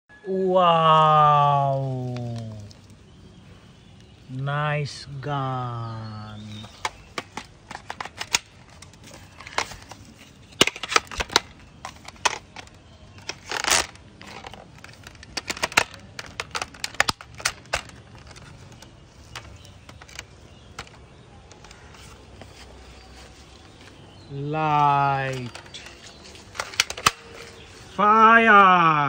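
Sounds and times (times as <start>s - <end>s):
plastic parts clicking and snapping: 6.5s - 22.6s, 24.9s - 27.9s.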